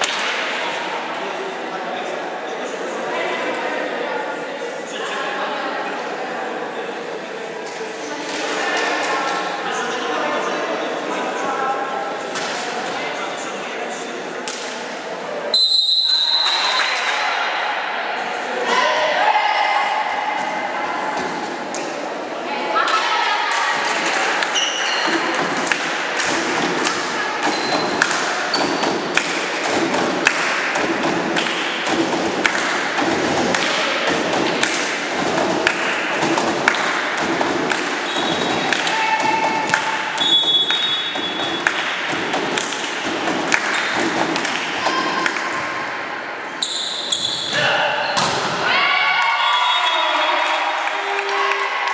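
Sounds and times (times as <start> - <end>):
hubbub of voices: 0.0 - 51.9
volleyball thuds and claps: 23.5 - 45.8
shoe squeaks: 24.5 - 25.2, 27.5 - 28.8, 38.0 - 38.7, 39.3 - 41.7, 46.6 - 48.2.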